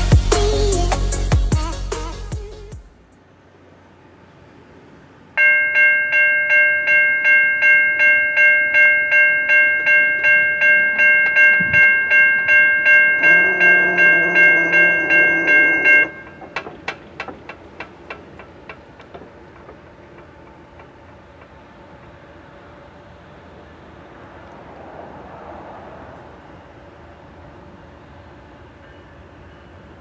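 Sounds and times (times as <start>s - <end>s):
low steady tone: 5.4s - 16.5s
crossing bell ringing: 5.4s - 17.8s, 28.5s - 30.0s.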